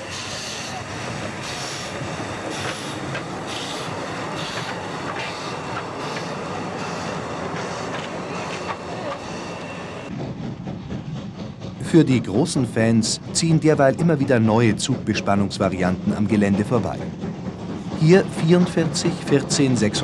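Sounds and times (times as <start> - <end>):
steam hissing: 0.0 - 10.3
steam locomotive exhaust puffing: 0.0 - 12.0
wheels clicking on rails: 0.0 - 20.0.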